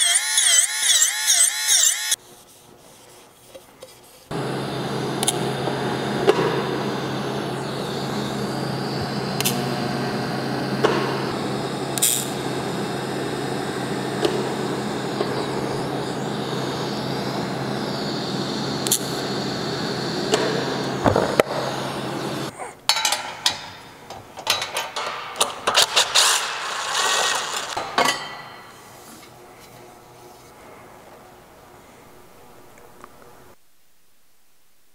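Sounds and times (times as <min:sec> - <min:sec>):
welder arc buzzing: 0:00.0 - 0:02.2, 0:04.3 - 0:22.5
metal parts clanking and rattling: 0:22.9 - 0:28.3.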